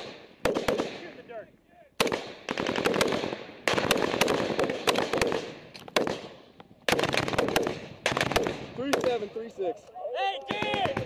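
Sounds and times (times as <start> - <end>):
automatic rifle fire bursts: 0.0 - 1.2, 2.0 - 9.3.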